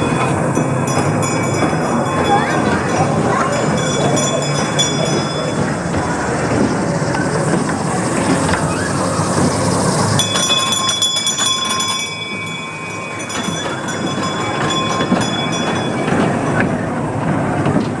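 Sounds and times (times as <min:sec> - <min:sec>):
miniature train rumbling: 0:00.0 - 0:18.0
high-pitched wheel squeal: 0:08.1 - 0:16.6.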